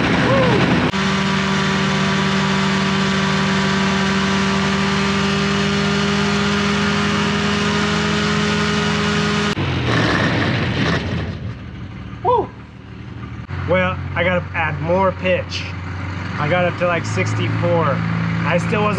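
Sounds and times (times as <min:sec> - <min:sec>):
ultralight aircraft engine running: 0:00.0 - 0:14.1.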